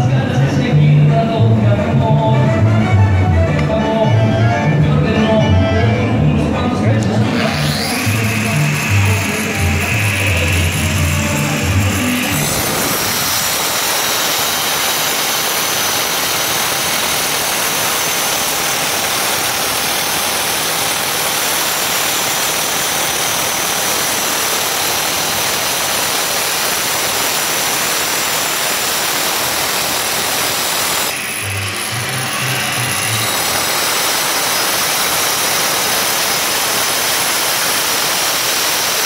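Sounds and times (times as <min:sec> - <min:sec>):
angle grinder cutting stone: 0:07.0 - 0:39.0.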